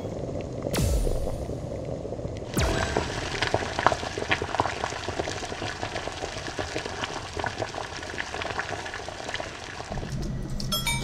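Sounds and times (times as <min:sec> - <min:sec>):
stew bubbling in a pot: 0:02.0 - 0:10.5.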